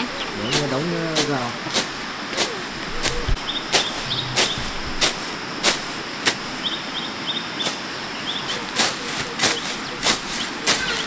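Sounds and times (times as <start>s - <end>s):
hand tool striking wood: 0.5s - 6.4s.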